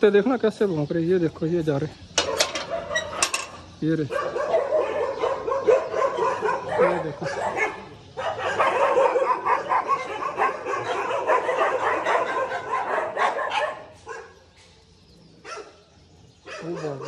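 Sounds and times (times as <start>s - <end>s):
dogs barking: 2.2s - 17.0s.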